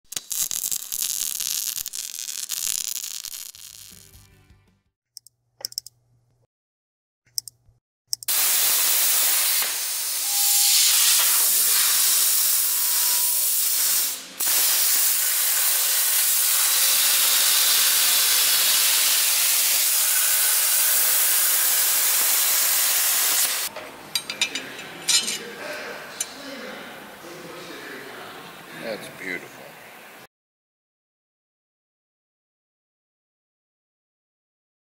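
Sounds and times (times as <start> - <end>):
plasma torch cutting hiss: 8.3 - 23.7.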